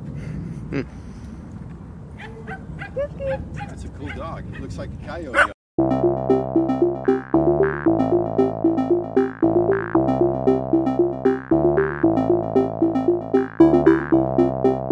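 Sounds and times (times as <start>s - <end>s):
held synthesizer chords: 5.8s - 14.9s
repeated synthesizer keyboard notes: 5.8s - 14.9s.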